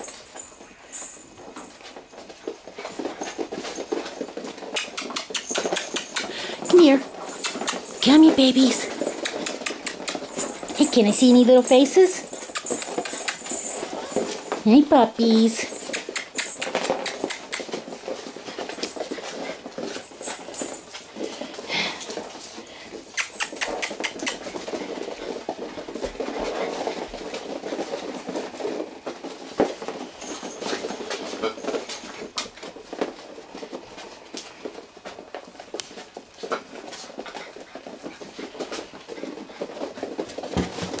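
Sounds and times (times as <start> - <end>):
claws pattering on tile floor: 0.0 - 41.0
puppies whimpering: 12.3 - 14.6.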